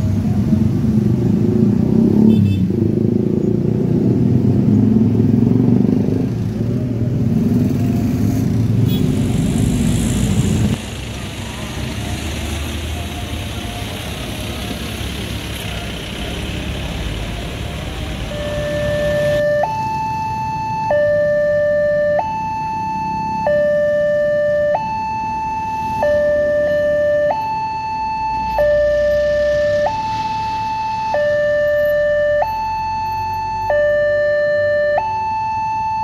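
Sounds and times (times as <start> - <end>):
street traffic: 0.0 - 36.0
level crossing two-tone alarm: 18.2 - 36.0.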